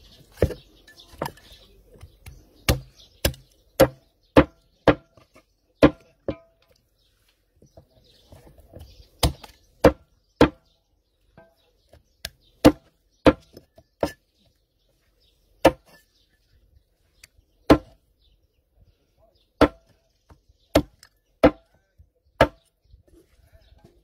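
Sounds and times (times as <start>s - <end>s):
cleaver chopping on wooden block: 0.4s - 6.5s, 9.2s - 10.7s, 12.2s - 14.2s, 15.6s - 16.0s, 17.7s - 18.0s, 19.6s - 20.0s, 20.7s - 21.7s, 22.4s - 22.7s.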